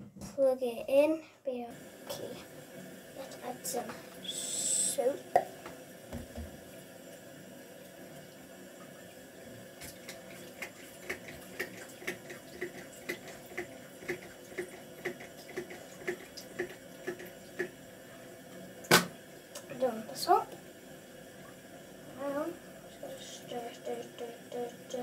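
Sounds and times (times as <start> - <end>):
faint water noise: 1.7 - 25.0
small splashes and knocks: 5.4 - 6.6.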